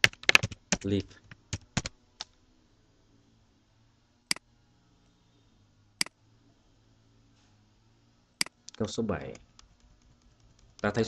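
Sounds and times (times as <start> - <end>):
faint low hum: 0.0 - 11.0
computer mouse clicks: 8.4 - 10.9.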